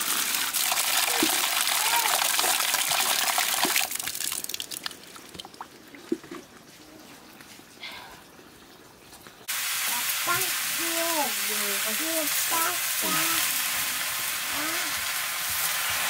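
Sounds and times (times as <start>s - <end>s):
water dripping and trickling: 0.0s - 13.6s
greens sizzling in a hot pan: 9.5s - 16.0s.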